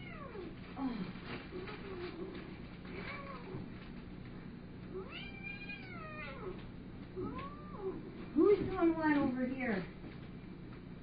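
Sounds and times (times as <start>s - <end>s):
cat meowing: 2.9s - 3.6s, 5.0s - 6.6s, 7.2s - 8.0s.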